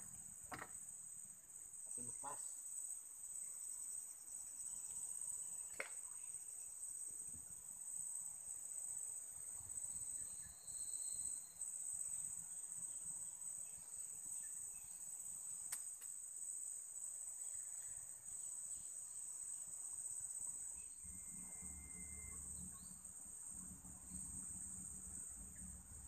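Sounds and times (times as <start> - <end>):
high-pitched insect chorus: 0.0 - 26.0
faint click: 15.7 - 16.1.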